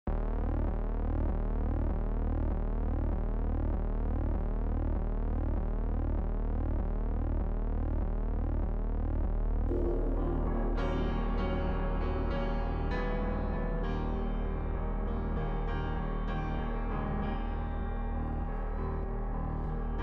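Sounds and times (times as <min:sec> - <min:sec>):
synthesizer low hum: 0:00.1 - 0:20.0
synthesizer pitched sweeps: 0:09.7 - 0:11.4.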